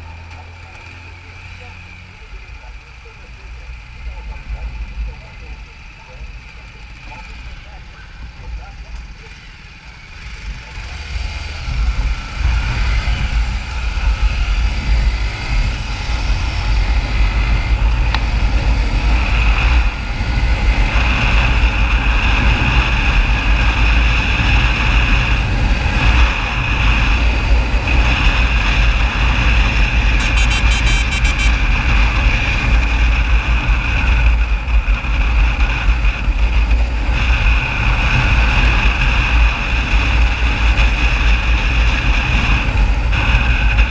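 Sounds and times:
motorcycle engine: 0.0s - 43.9s
wind rushing on microphone: 10.6s - 43.9s.

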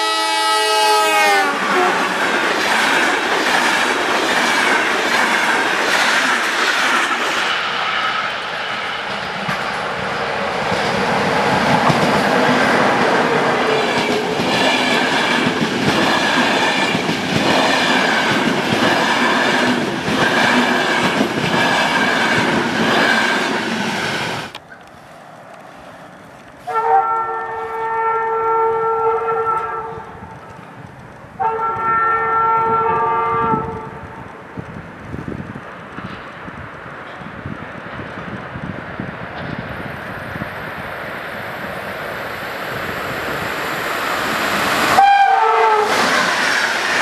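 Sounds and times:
locomotive horn blasts: 0.0s - 2.0s, 26.6s - 30.1s, 31.4s - 34.0s, 44.9s - 46.0s.

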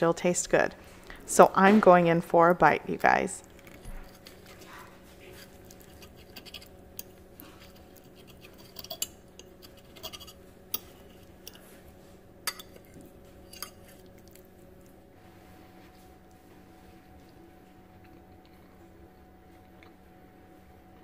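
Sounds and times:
faint steady hum: 0.0s - 21.0s
fork scraping and clicking on plate: 5.6s - 11.7s.

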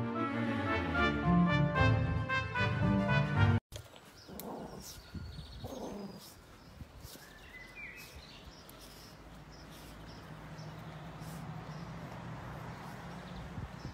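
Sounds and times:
small birds chirping: 3.8s - 13.9s.

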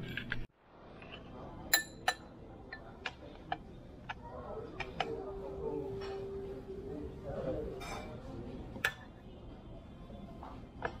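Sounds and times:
metal spoon clinking on ceramic bowls: 1.7s - 2.9s.

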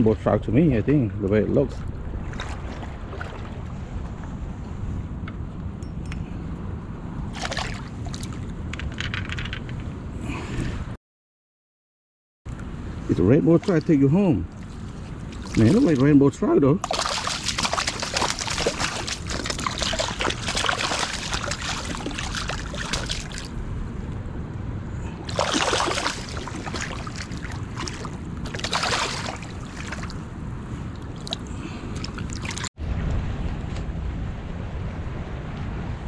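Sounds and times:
river water rushing: 16.8s - 23.6s, 25.3s - 30.3s.

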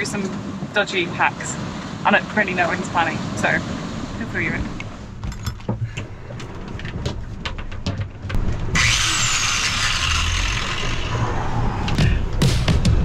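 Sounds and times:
angle grinder whirring: 8.6s - 11.8s.

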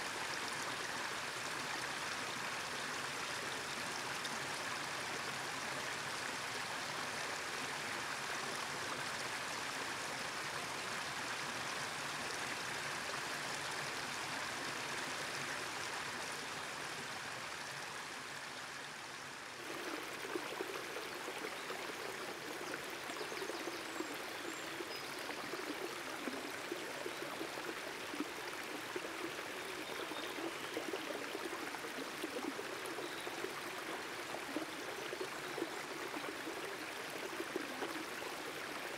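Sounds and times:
creek water rushing over rocks: 0.0s - 38.9s
small water splashes: 19.6s - 38.9s.

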